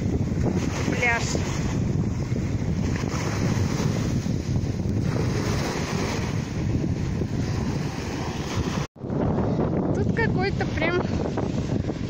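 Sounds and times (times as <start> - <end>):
small waves breaking on sand: 0.0 - 8.9
wind buffeting microphone: 0.0 - 12.0.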